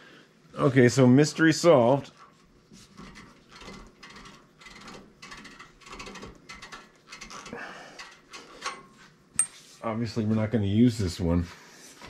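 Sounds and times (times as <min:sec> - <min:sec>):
metal parts clicking and rattling: 0:03.0 - 0:09.5.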